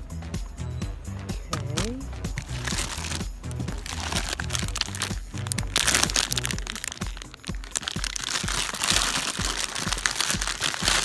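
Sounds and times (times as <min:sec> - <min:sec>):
music with steady beat and bass: 0:00.0 - 0:11.0
crackling and crinkling noise: 0:02.4 - 0:11.0.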